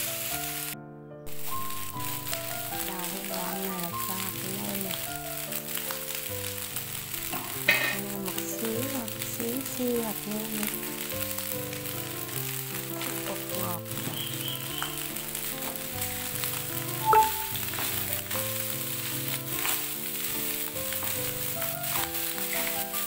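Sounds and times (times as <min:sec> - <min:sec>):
rice sizzling in pan: 0:00.0 - 0:23.0
spatula scraping and tapping pan: 0:07.1 - 0:08.4, 0:10.8 - 0:23.0.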